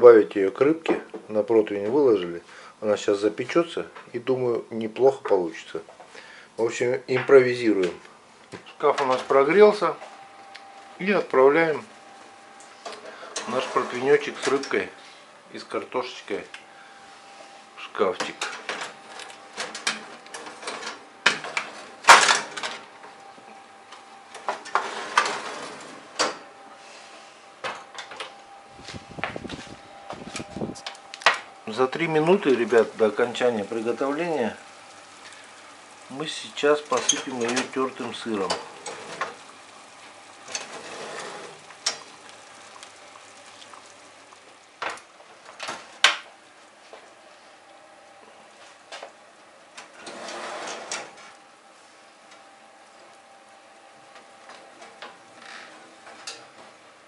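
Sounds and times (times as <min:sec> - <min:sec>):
baking tray scraping on oven rack: 0:13.1 - 0:14.7, 0:24.6 - 0:26.1, 0:36.9 - 0:39.4, 0:40.4 - 0:42.0, 0:49.9 - 0:51.4
food sizzling on baking tray: 0:30.8 - 0:47.5.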